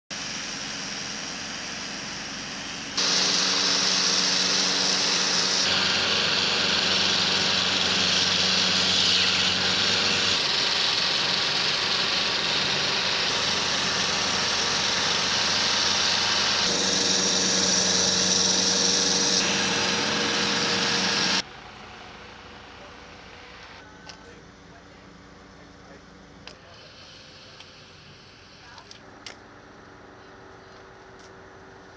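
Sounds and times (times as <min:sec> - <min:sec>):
construction machinery engine: 0:00.2 - 0:31.9.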